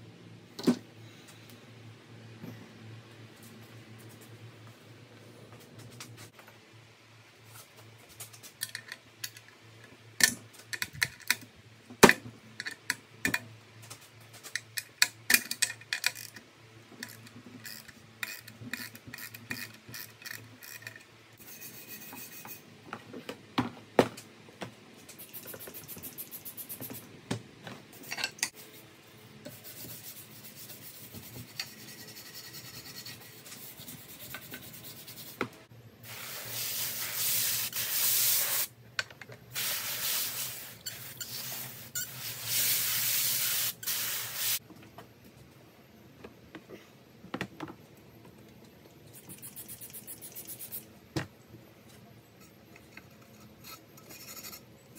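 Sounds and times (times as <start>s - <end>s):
metal parts clicking and clinking: 14.5s - 16.4s.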